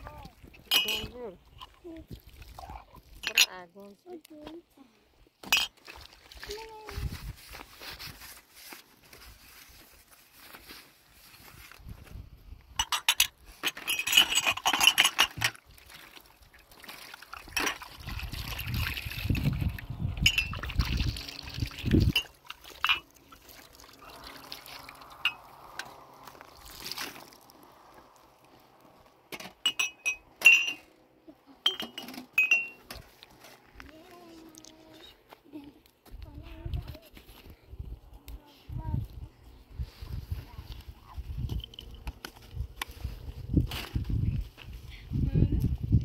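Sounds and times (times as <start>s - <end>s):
glasses clinking: 0.7s - 1.2s, 12.8s - 15.3s, 20.2s - 20.6s, 22.1s - 23.1s, 25.2s - 25.5s, 29.6s - 30.8s, 31.6s - 32.8s
liquid being poured: 15.7s - 27.6s.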